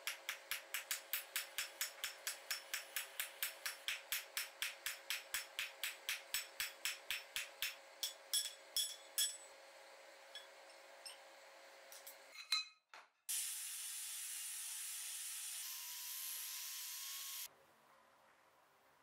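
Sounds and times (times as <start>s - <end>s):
hammer striking hot steel on anvil: 0.0s - 9.5s, 10.3s - 11.2s.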